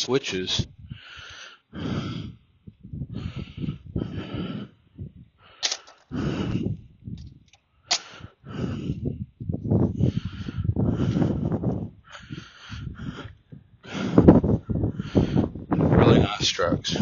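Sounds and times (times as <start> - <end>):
sharp clicks: 5.6 - 6.1, 7.2 - 8.2.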